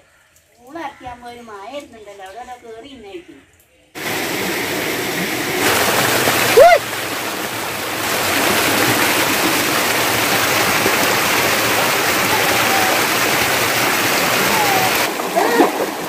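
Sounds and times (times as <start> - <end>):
running water rushing: 4.0 - 16.0.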